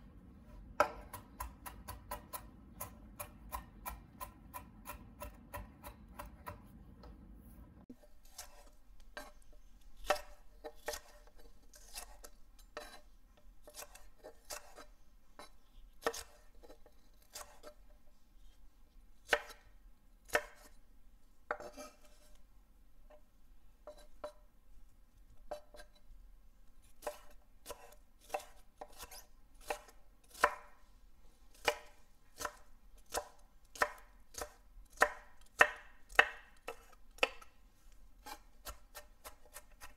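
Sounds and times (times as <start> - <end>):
knife chopping on wooden board: 0.7 - 7.2, 8.3 - 9.3, 10.0 - 12.2, 13.6 - 17.7, 20.3 - 20.8, 27.0 - 30.8, 31.6 - 37.5, 38.2 - 39.9.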